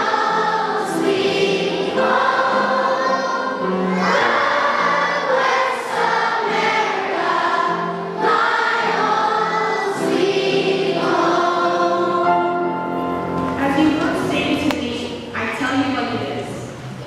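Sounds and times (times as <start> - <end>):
children's choir singing: 0.0 - 14.7.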